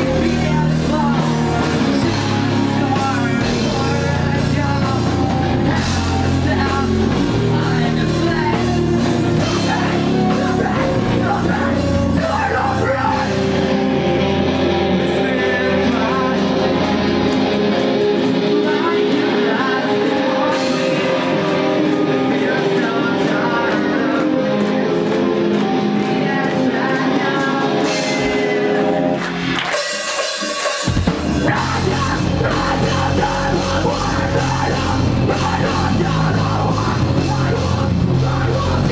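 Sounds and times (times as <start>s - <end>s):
person singing: 0.0s - 29.9s, 31.0s - 38.9s
bass guitar: 0.0s - 38.9s
distorted electric guitars: 0.0s - 38.9s
drum kit: 0.0s - 38.9s.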